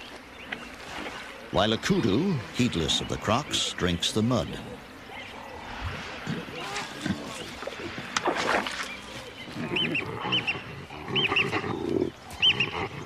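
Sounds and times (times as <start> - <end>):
baboons grunting: 4.4 - 8.6, 9.2 - 13.0
baboons screeching: 9.5 - 13.0.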